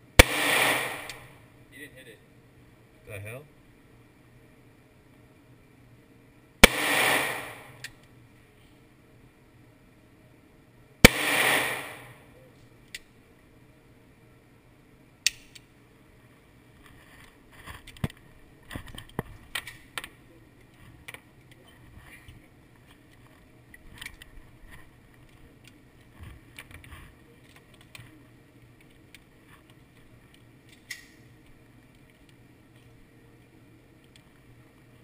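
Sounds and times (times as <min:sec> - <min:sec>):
handgun shot: 0:00.2 - 0:01.3, 0:06.6 - 0:07.8, 0:11.0 - 0:12.1.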